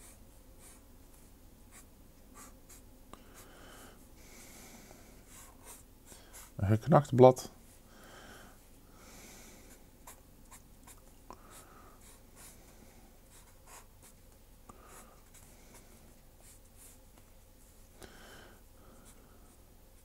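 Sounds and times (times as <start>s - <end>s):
pen scratching on paper: 1.7s - 2.8s, 5.3s - 6.6s, 13.3s - 14.2s.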